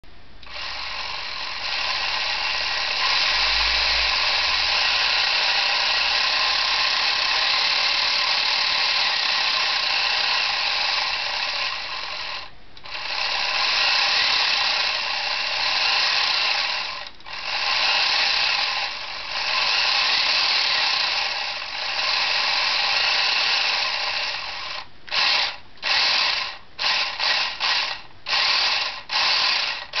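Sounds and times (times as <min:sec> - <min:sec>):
toy gear train running: 0:00.4 - 0:30.0.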